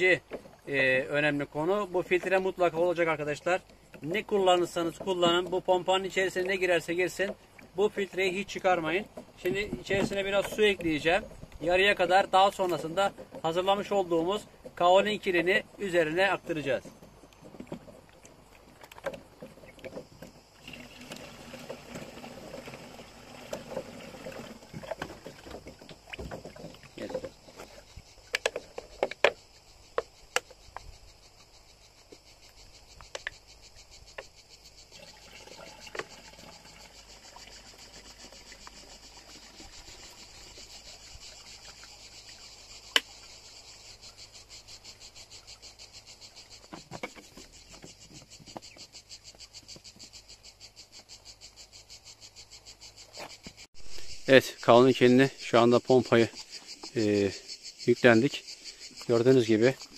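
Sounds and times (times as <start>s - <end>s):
insects chirping: 0.0s - 59.9s
water pouring into plastic tank: 20.6s - 27.2s, 34.9s - 42.4s.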